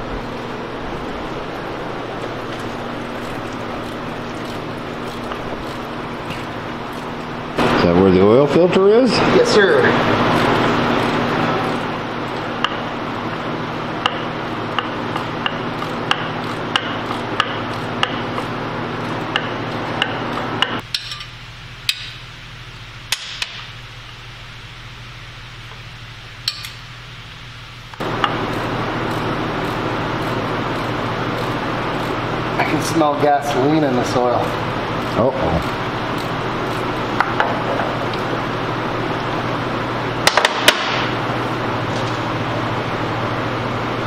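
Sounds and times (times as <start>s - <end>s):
steady shop hum: 0.0s - 44.0s
ratchet wrench clicking: 14.8s - 19.5s.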